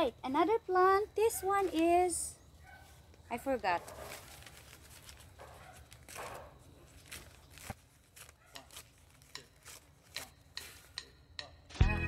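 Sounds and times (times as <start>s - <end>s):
newspaper rustling and crackling: 1.4s - 11.0s.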